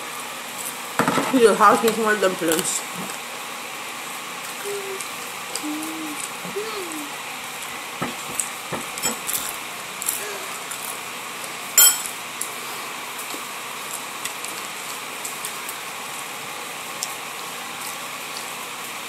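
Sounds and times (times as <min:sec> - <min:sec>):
sharp clink: 0:11.8 - 0:12.1.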